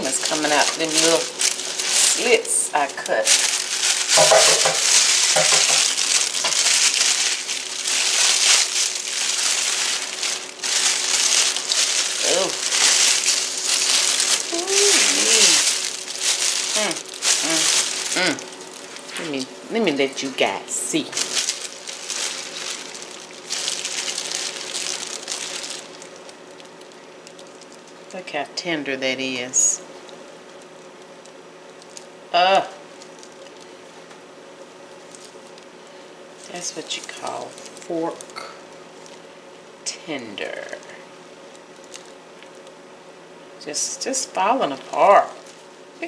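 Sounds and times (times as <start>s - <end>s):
plastic bag crinkling: 0.0s - 28.4s, 29.9s - 34.1s, 34.8s - 39.7s, 40.5s - 42.8s, 44.7s - 46.0s.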